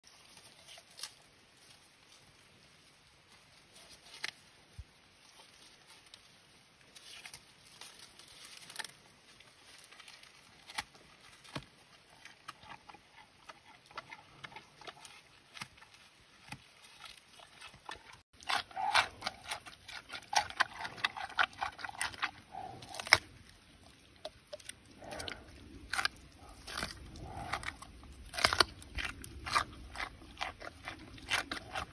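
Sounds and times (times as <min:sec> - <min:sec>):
panda chewing bamboo: 0:17.4 - 0:31.9.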